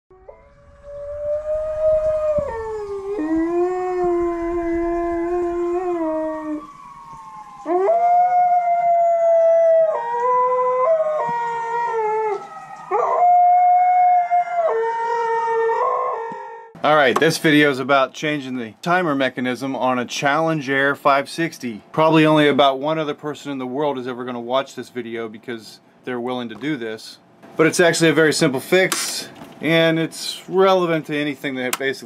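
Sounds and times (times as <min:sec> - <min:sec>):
faint rising and falling tone: 0:00.1 - 0:09.6
dog howling: 0:00.1 - 0:16.8.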